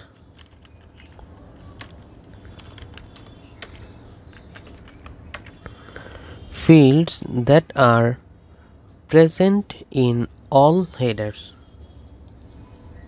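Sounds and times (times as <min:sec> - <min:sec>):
low steady hum: 0:00.0 - 0:13.0
keyboard typing clicks: 0:00.2 - 0:06.2.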